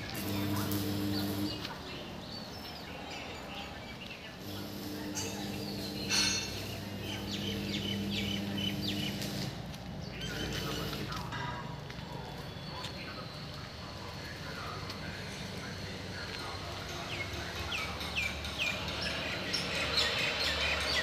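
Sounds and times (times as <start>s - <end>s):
steady low hum: 0.0s - 1.7s, 4.4s - 11.2s
small birds chirping: 0.0s - 21.0s.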